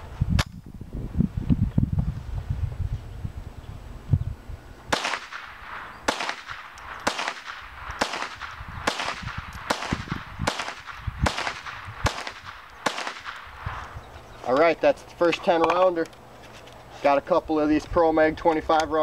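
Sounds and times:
rifle shots cracking: 0:04.9 - 0:13.9.

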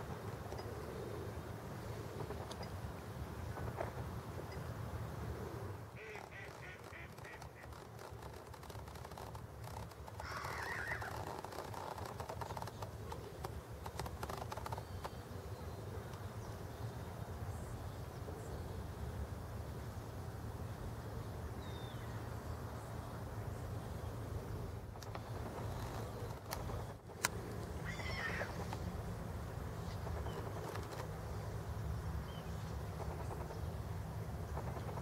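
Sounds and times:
birds calling: 0:05.3 - 0:17.0, 0:23.9 - 0:29.0.

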